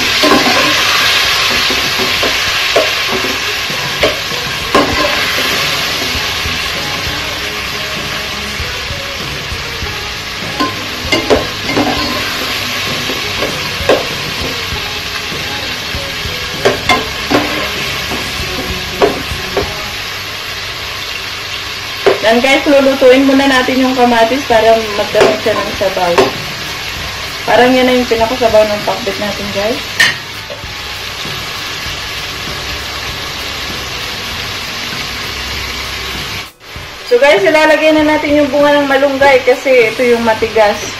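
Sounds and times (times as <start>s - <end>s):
vegetables sizzling in hot oil: 0.0s - 40.9s
metal spoon knocking and scraping pot: 4.0s - 5.5s, 10.6s - 14.5s.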